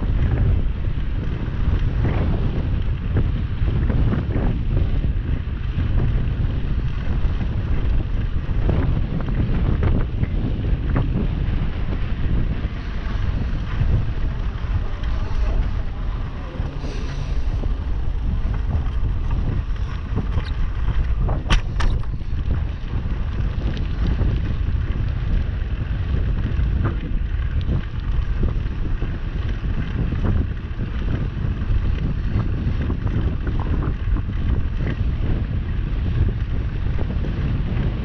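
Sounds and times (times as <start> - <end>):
tyres humming on asphalt: 0.0 - 38.0
wind buffeting microphone: 0.0 - 38.0.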